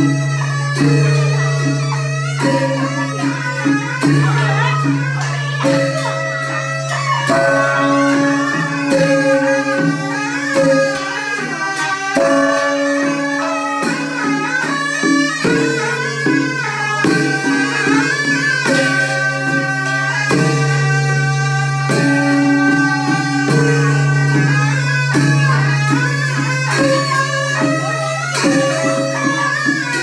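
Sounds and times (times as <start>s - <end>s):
drum strikes: 0.0s - 30.0s
reedy wind instrument melody: 0.0s - 30.0s.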